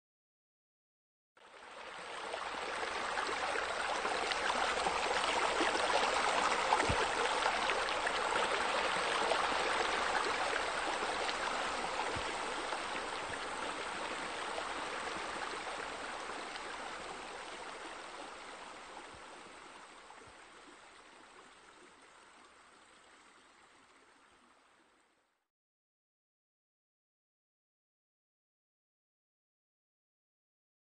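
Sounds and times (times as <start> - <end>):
running water rushing: 1.4 - 24.7.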